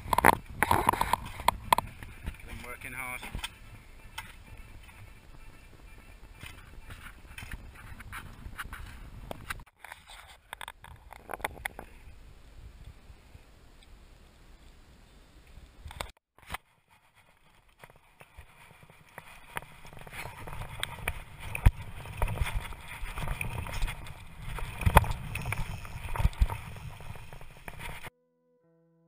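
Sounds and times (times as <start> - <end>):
bike tyres rumbling on dirt: 0.0 - 9.6, 16.8 - 28.1
bike rattling: 0.0 - 12.1, 15.9 - 28.1.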